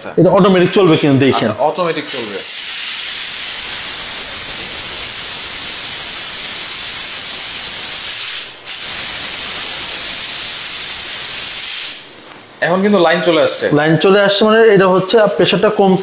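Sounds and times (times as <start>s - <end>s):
steam hissing from coffee machine: 2.1s - 13.3s.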